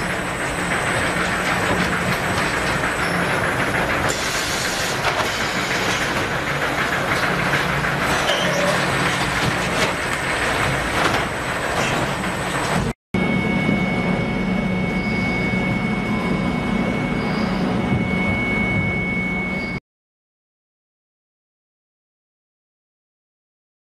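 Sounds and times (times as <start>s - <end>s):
packing machinery clattering: 0.0s - 13.0s
machinery clanks: 0.0s - 19.0s
machinery hum with high whine: 0.0s - 19.8s.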